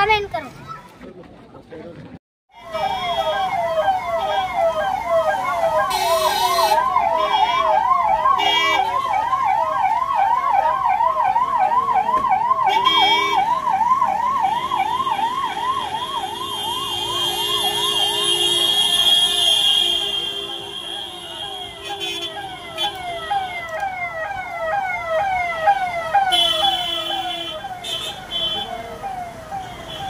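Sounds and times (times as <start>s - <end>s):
electronic yelp siren: 2.5s - 30.0s
horn blasts: 15.8s - 23.0s.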